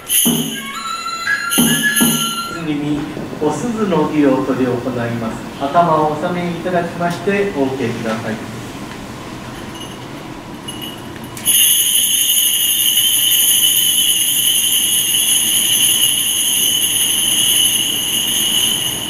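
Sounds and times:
bell tree jingling: 0.0s - 2.8s, 9.5s - 19.0s.

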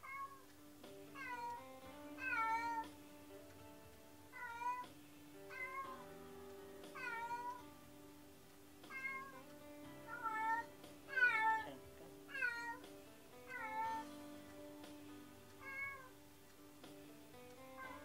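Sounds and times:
cat meowing: 0.0s - 0.5s, 1.2s - 1.6s, 2.2s - 2.9s, 4.3s - 4.9s, 5.5s - 6.0s, 6.9s - 7.6s, 8.9s - 9.5s, 10.1s - 12.8s, 13.5s - 14.1s, 15.6s - 16.1s, 17.8s - 18.0s.

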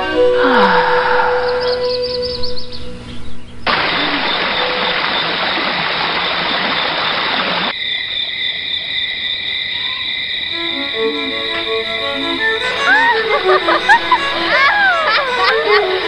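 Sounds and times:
high drone of held tones: 0.0s - 4.8s.

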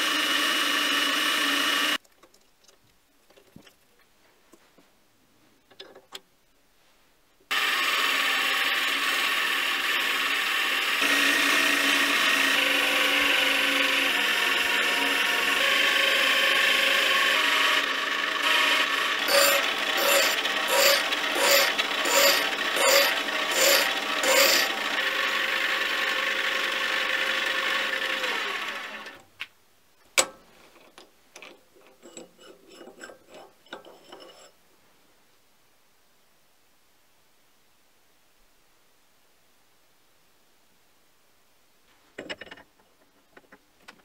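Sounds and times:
lathe running: 7.5s - 29.2s.

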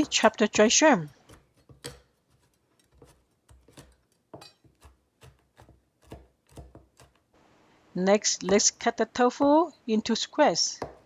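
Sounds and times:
cleaver chopping on plastic board: 1.3s - 7.2s, 10.8s - 11.0s.

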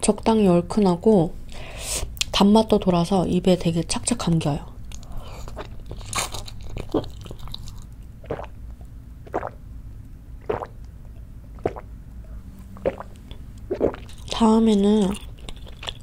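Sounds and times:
person chewing food: 4.9s - 9.6s, 10.4s - 16.0s
person gulping drink: 6.8s - 9.6s, 10.4s - 14.4s.

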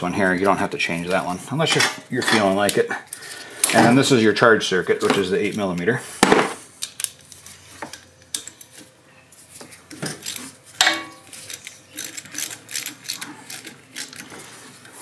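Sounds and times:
wrench clicking on metal nuts: 10.2s - 14.3s.

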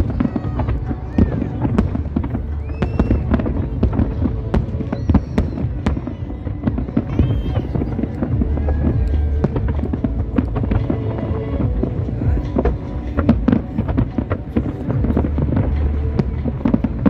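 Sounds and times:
fireworks bangs and crackles: 0.0s - 17.0s
low rumble: 0.0s - 17.0s.

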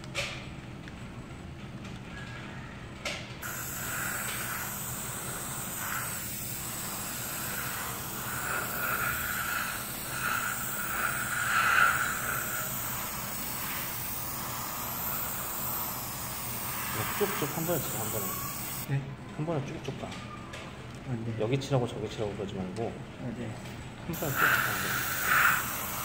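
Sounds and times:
airbrush spraying air hiss: 3.4s - 18.9s, 24.1s - 26.0s.

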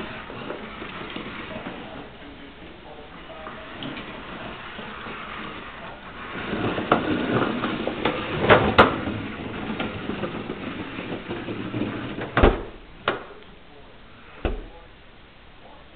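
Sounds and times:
toy wagon rolling on tile: 0.0s - 12.4s
wagon knocking into walls: 5.2s - 13.4s.

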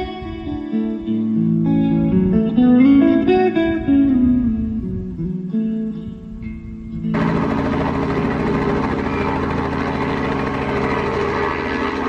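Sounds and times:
plucked guitar melody: 0.0s - 7.1s.

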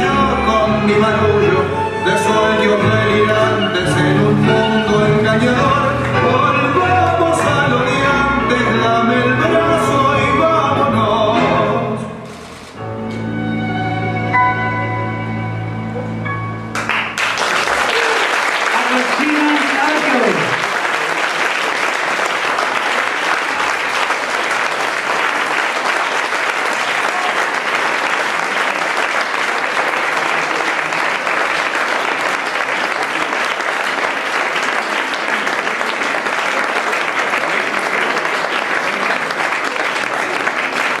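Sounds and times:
audience applauding: 16.7s - 41.0s.

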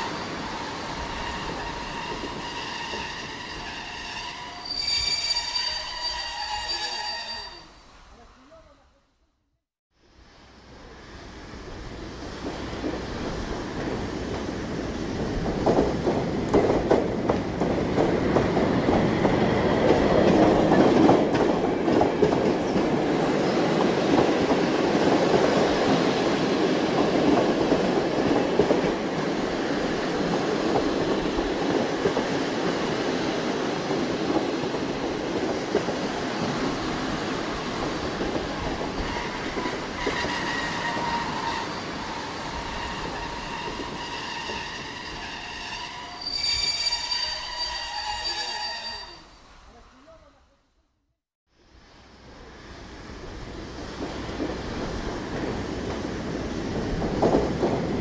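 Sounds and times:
train wheel squeal: 0.0s - 7.8s, 38.9s - 49.4s
train wheels rattling and clacking: 15.1s - 46.0s, 54.0s - 58.0s.

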